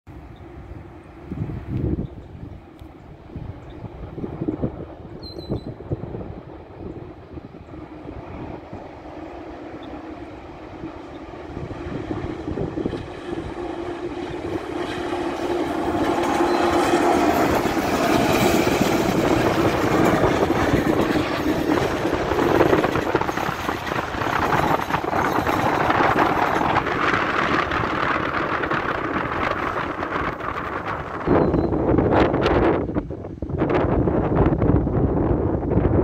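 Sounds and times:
passenger train passing: 0.1s - 36.0s.

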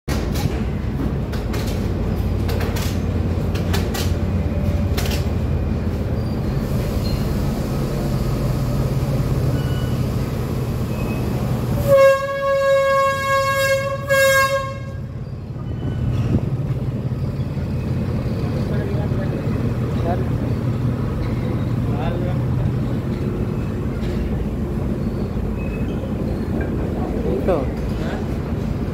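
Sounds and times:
diesel train rumble: 0.1s - 28.9s
train horn blast: 11.8s - 15.2s.

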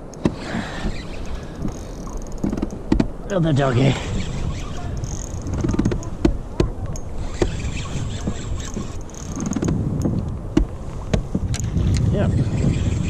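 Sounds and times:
sharp knocks: 10.5s - 11.7s.

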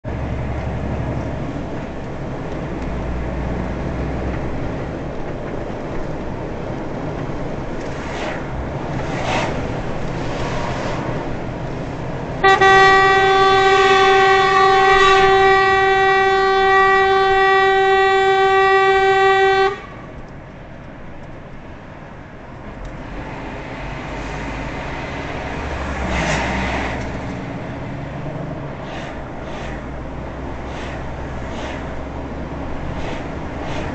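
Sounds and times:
road and engine noise in truck cab: 0.0s - 33.9s
vehicle horn blast: 12.4s - 20.1s.

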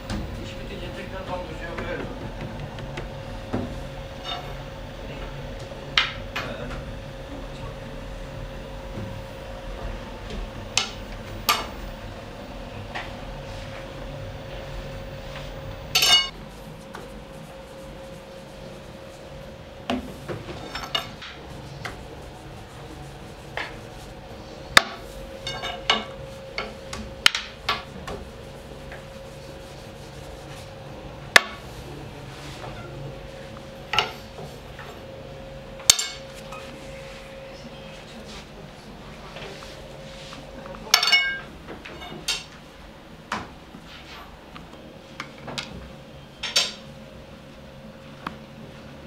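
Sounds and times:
steady hum: 0.0s - 49.0s
knocks and clinks of utensils: 16.0s - 16.3s, 25.4s - 26.1s, 40.9s - 42.5s.

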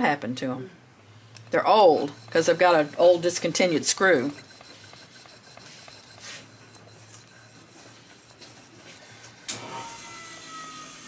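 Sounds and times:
blade scraping on sharpening stone: 1.8s - 9.5s
sharpening machine whining: 1.9s - 11.0s.

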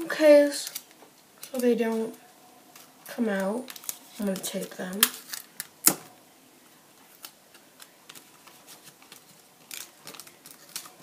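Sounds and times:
paper rustling: 7.0s - 11.0s.

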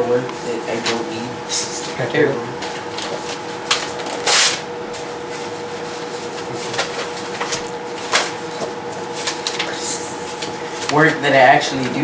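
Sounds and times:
steady hum: 0.0s - 12.0s
papers rustling: 2.6s - 12.0s.

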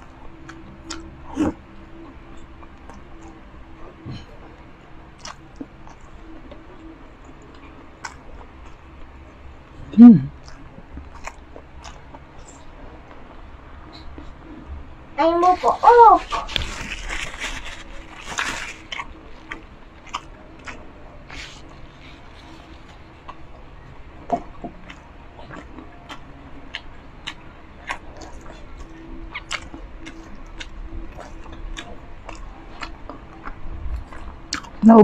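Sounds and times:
person chewing: 0.4s - 1.6s, 5.2s - 9.1s, 9.9s - 12.7s, 15.8s - 23.6s, 24.2s - 34.8s.

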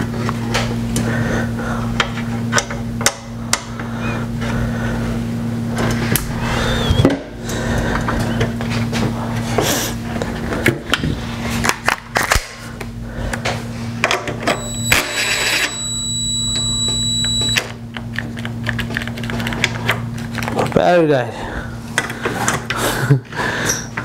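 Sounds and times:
steady low hum: 0.0s - 24.0s
thin high whine: 6.1s - 7.5s, 14.4s - 17.8s.

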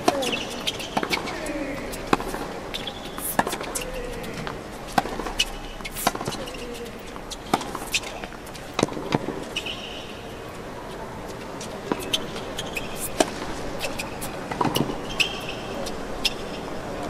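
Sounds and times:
shoe squeaks: 0.0s - 2.1s, 2.7s - 4.4s, 5.3s - 8.3s, 9.4s - 10.2s, 11.3s - 13.2s, 13.8s - 16.7s
ball bouncing: 0.0s - 2.5s
racket striking ball: 0.0s - 9.7s
crowd murmur: 0.0s - 17.0s.

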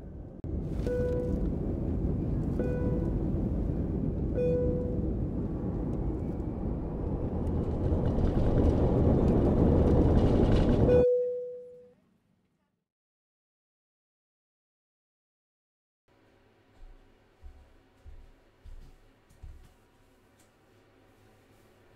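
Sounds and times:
jet engine whine: 0.0s - 11.1s
short beeping tones: 2.6s - 3.2s, 4.4s - 5.0s, 10.9s - 11.9s.

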